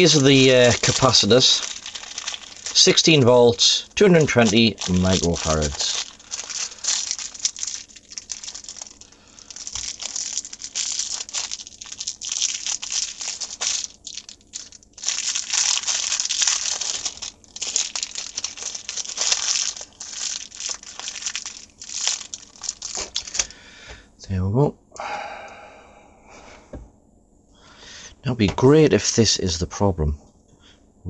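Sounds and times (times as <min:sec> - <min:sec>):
plastic packaging crinkling: 0:00.0 - 0:23.6.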